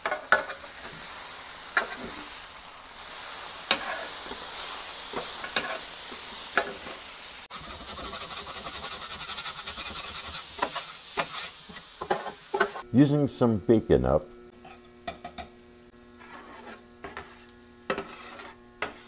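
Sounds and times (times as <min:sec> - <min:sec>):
bacon sizzling on griddle: 0:00.0 - 0:12.9.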